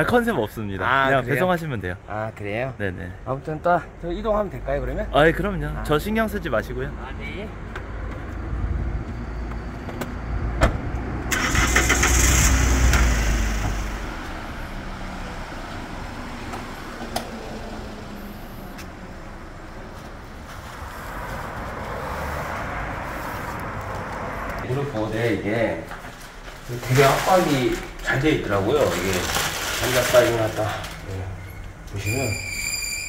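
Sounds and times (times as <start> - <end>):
truck engine cranking and starting: 10.8 - 14.4.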